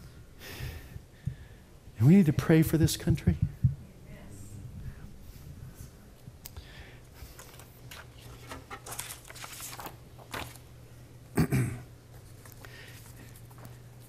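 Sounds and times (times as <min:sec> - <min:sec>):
objects rustling and clicking: 0:07.1 - 0:10.7.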